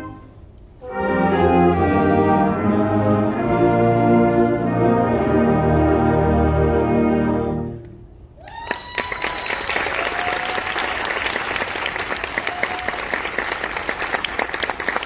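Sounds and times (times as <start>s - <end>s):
audience applause: 8.4s - 15.0s.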